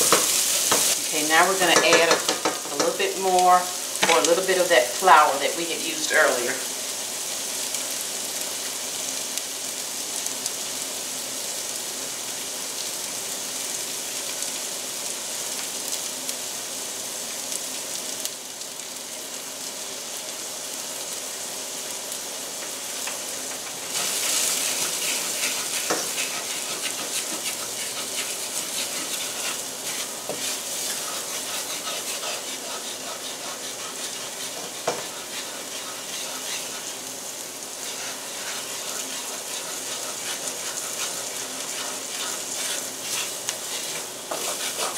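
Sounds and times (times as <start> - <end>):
wooden spoon scraping a pan: 0.0 - 5.4, 22.6 - 37.1, 37.7 - 44.9
vegetables sizzling in a skillet: 0.0 - 44.9.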